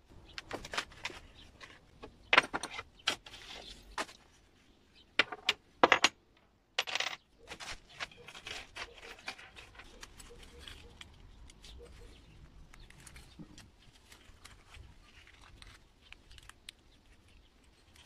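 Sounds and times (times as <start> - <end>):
metal parts clinking on workbench: 5.2 - 6.2, 6.8 - 7.2
rustle of gloved hands: 7.5 - 18.0.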